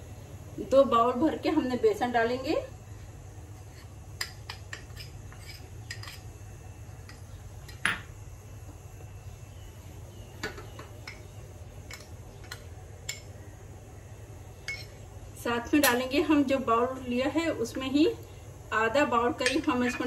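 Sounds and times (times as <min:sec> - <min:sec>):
spoon clinking against bowl: 0:14.7 - 0:14.9.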